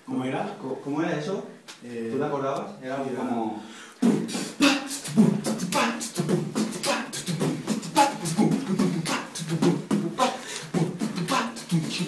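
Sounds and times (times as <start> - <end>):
person beatboxing: 4.0 - 12.0.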